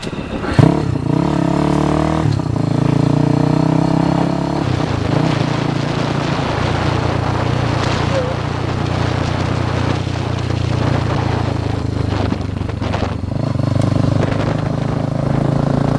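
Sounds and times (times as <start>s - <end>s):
motorcycle engine accelerating: 0.4s - 15.9s.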